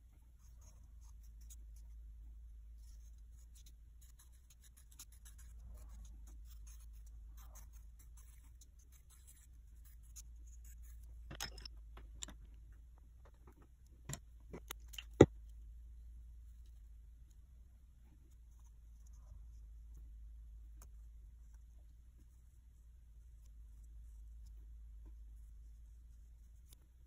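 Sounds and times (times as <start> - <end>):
pencil scratching on clay: 0.2 - 11.2, 18.1 - 27.0.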